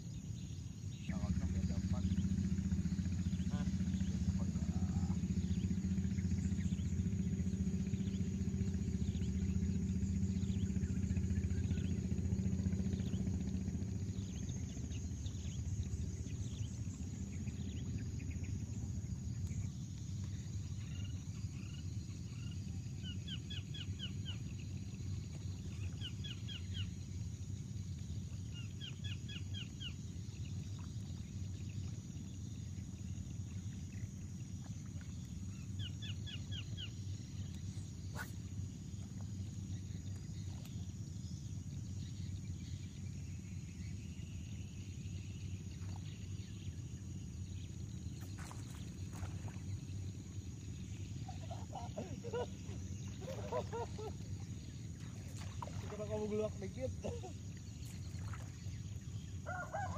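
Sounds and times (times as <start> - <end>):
high insect drone: 0.0 - 59.9
low engine hum: 0.1 - 59.9
birds chattering: 48.1 - 58.0.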